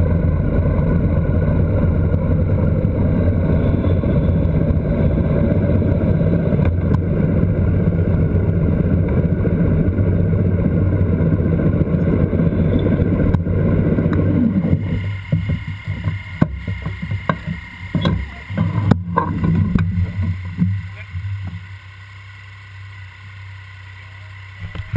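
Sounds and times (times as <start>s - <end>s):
motorcycle engine running: 0.0s - 24.9s
wind and road noise: 0.0s - 24.9s
clicks and knocks: 14.8s - 20.8s.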